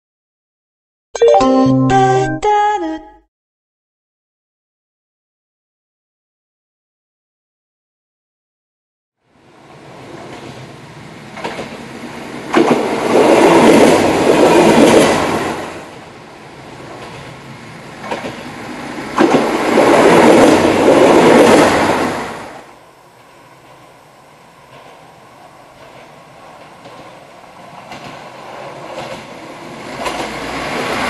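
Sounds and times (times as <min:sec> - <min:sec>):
diesel railcar passing: 0:09.3 - 0:31.0
wheel clicks over rail joints: 0:11.4 - 0:11.8, 0:30.0 - 0:30.4.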